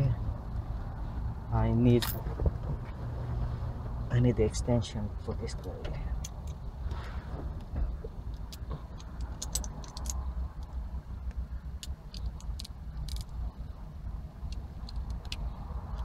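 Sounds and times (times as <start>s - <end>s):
low steady rumble: 0.0s - 16.0s
metal tool parts clicking: 8.3s - 10.3s, 11.8s - 13.3s.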